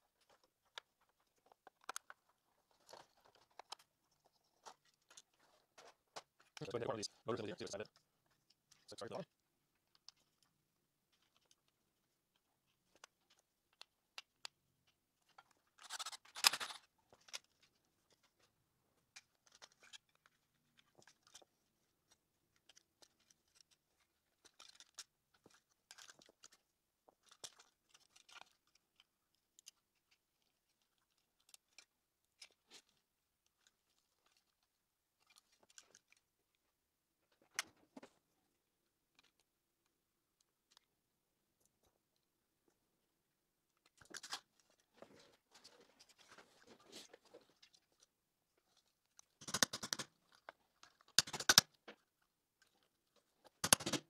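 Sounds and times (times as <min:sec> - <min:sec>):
plastic housing clicking and rattling: 0:00.7 - 0:02.2, 0:15.2 - 0:17.7, 0:49.2 - 0:51.8, 0:53.5 - 0:54.0.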